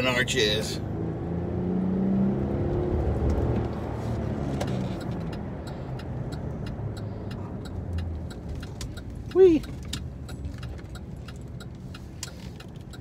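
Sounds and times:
car engine running: 0.0 - 13.0
road noise inside car: 0.0 - 13.0.

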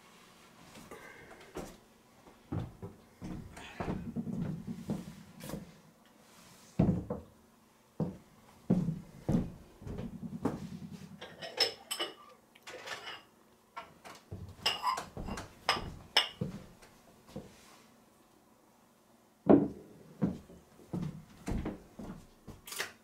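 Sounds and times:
pots and dishes clattering: 11.2 - 13.9, 14.6 - 16.4.

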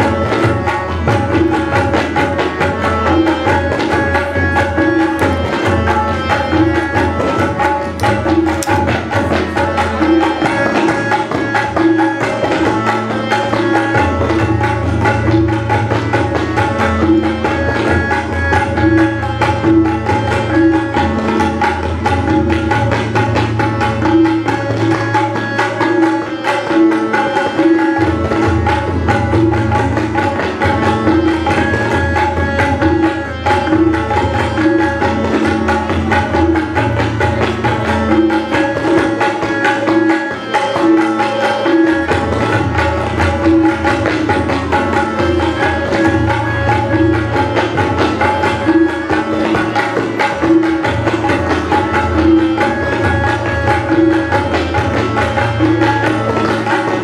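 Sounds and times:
harmonium melody: 0.0 - 57.0
tabla drums playing: 0.0 - 57.0.

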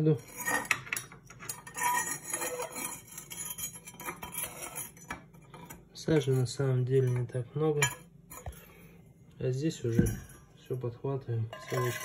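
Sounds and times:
metal poker scraping soot: 0.0 - 7.2, 11.5 - 12.0.

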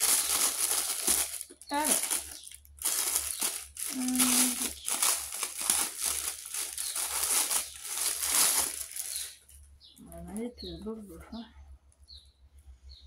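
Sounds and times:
packaging crinkling: 0.0 - 9.8.

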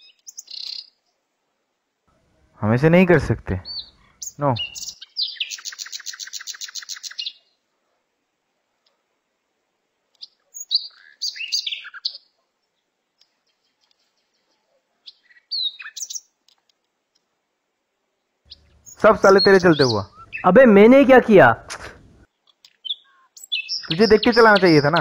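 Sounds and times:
birds chirping: 0.0 - 1.2, 2.3 - 7.7, 10.0 - 16.7, 18.1 - 25.0
bird trilling: 3.6 - 7.5, 10.2 - 12.3, 15.0 - 16.2, 18.5 - 21.1, 22.8 - 25.0.

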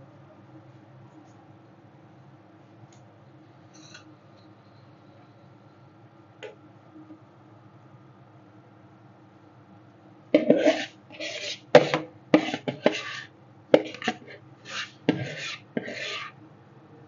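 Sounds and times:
metal spatulas scraping steel plate: 10.4 - 16.4.

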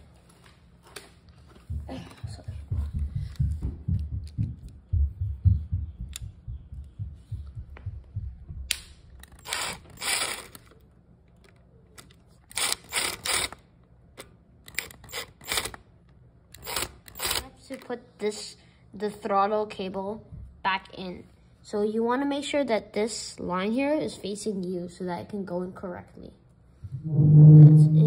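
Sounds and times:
cordless drill motor bursts: 9.2 - 10.7, 12.5 - 13.6, 16.6 - 17.4.

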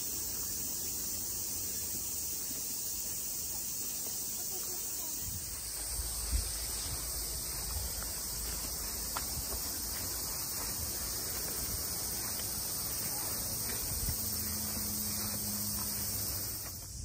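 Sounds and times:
insects chorus: 0.0 - 17.0
faint footsteps on gravel: 1.9 - 17.0.

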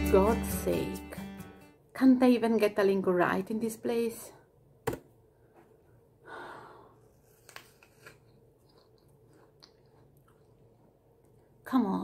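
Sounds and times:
person breathing out: 6.2 - 7.1
person chewing an apple: 7.2 - 11.6.

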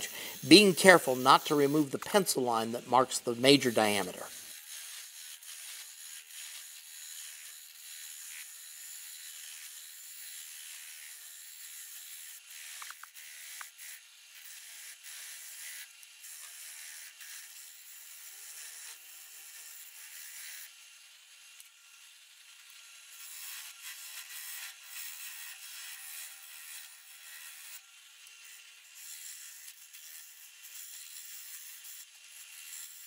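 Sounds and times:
chisel scraping spinning wood: 0.0 - 6.6.

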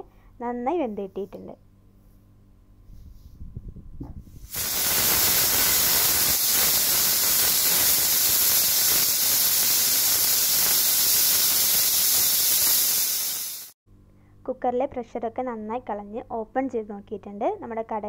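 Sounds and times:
pressure cooker steam hissing: 4.5 - 13.8.

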